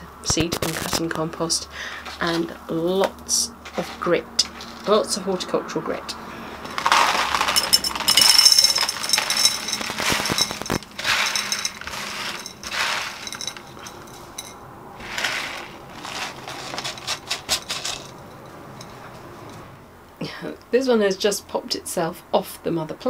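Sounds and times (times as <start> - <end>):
grit pouring into a pot: 6.7 - 16.6
fingers stirring grit: 8.9 - 14.4.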